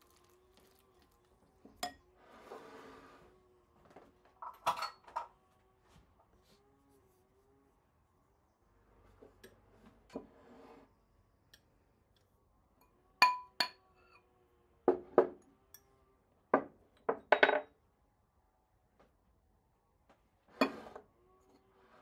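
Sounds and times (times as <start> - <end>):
utensils clinking against dishes: 4.4 - 5.3.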